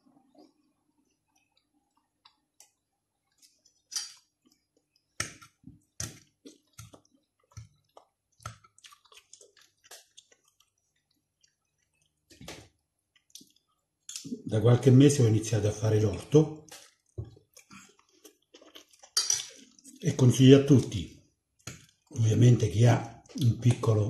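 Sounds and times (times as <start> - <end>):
chewing: 0.2 - 14.4, 16.0 - 20.0, 21.6 - 22.2.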